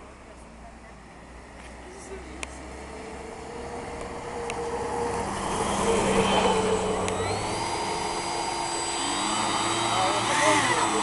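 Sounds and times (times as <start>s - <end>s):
hovercraft fan and propellers whirring: 0.8s - 11.0s
rising whine: 2.4s - 11.0s.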